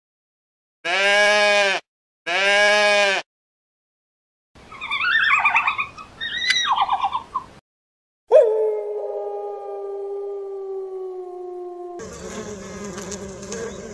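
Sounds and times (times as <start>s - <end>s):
goat bleating: 0.9s - 3.2s
red panda squeaky calls: 4.7s - 7.5s
wolf howling: 8.3s - 12.0s.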